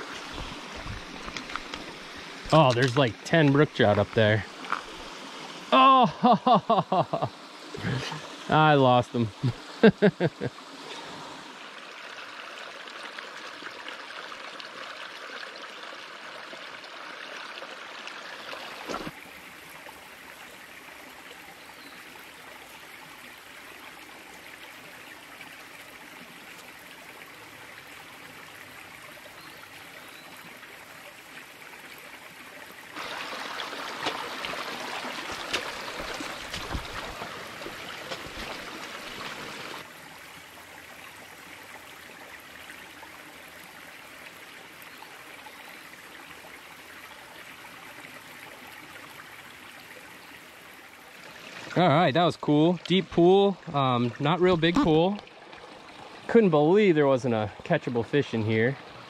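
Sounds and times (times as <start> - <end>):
stream trickling over stones: 0.0 - 59.0
sharp knocks or splashes: 33.0 - 39.5.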